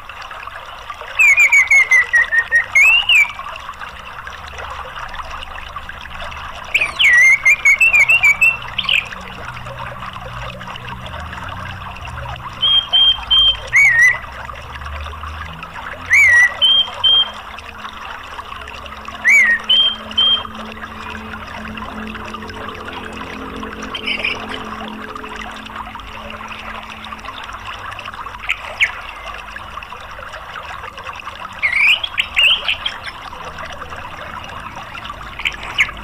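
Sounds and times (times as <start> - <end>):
running water: 0.0 - 36.0
bird chirping and whistling: 1.2 - 3.4, 6.7 - 9.1, 12.6 - 14.2, 16.1 - 17.4, 19.2 - 20.6.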